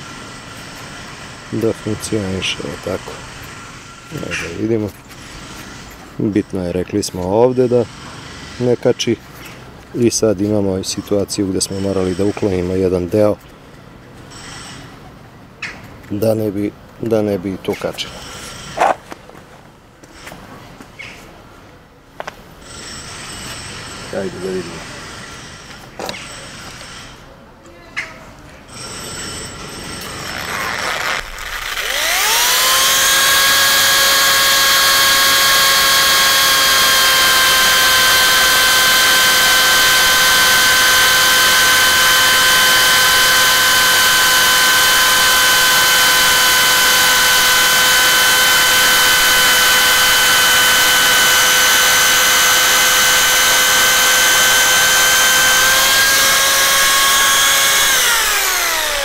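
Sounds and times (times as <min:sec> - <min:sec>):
jigsaw motor whine: 0:28.7 - 0:59.0.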